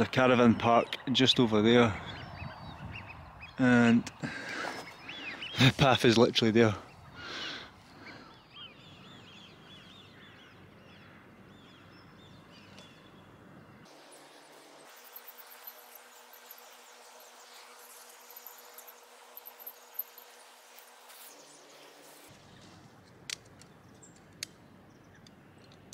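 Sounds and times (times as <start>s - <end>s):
small bird chirping: 14.9s - 22.6s.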